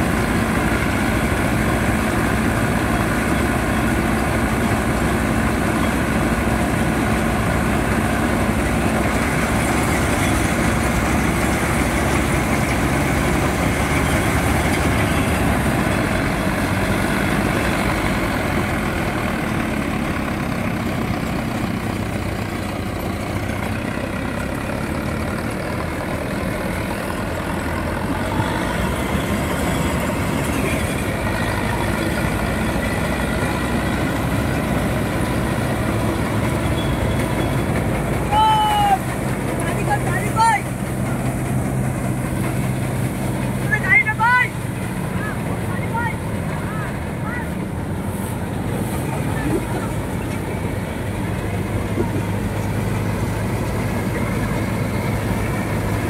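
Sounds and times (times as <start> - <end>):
combine harvester cutting crop: 0.0 - 56.0
tractor diesel engine running: 0.0 - 56.0.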